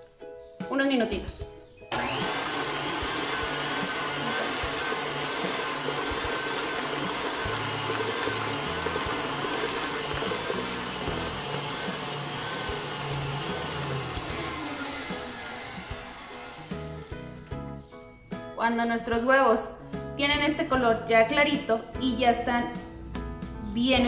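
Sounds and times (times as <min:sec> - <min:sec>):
electric stand mixer whisking: 0:01.9 - 0:17.5.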